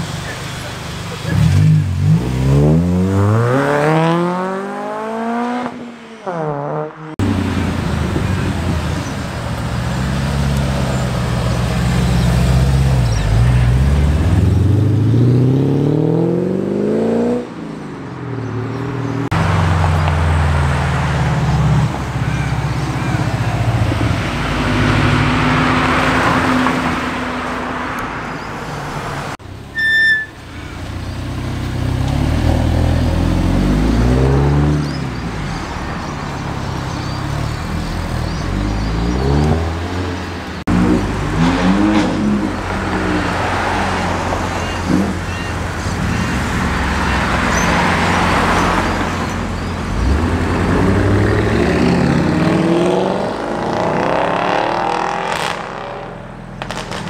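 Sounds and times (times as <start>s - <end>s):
car engines revving and accelerating: 0.0s - 29.4s, 30.5s - 57.0s
short high beep: 29.8s - 30.4s.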